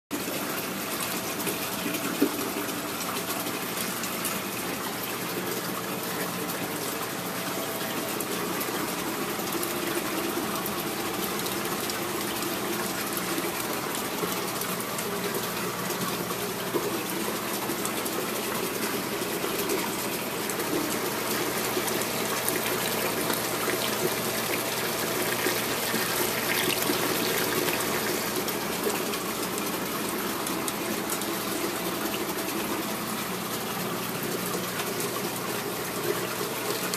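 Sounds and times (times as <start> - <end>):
low pump hum: 0.2 - 36.9
water gushing and splashing: 17.4 - 34.4.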